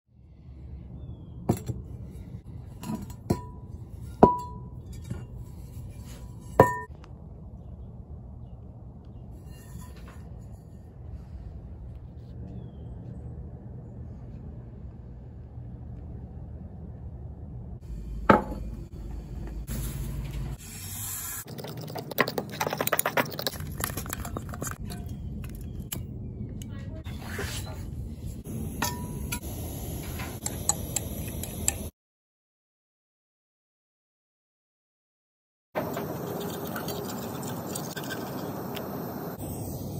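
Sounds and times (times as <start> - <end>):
cast iron pan clinking: 2.8 - 5.7, 6.3 - 6.9
fork stirring in ceramic bowl: 22.6 - 25.1.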